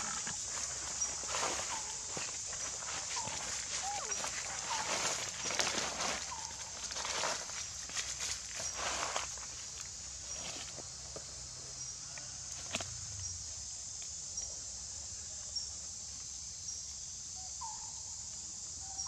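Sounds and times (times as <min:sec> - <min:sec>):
insects droning: 0:00.0 - 0:19.0
faint chirp: 0:00.8 - 0:06.6.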